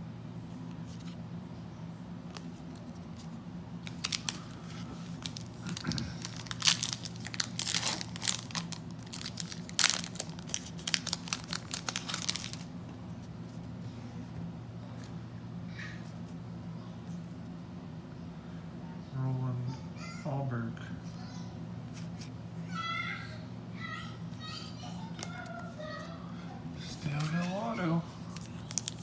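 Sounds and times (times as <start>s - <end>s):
foil wrapper crinkling and tearing: 3.8s - 12.7s, 27.0s - 29.0s.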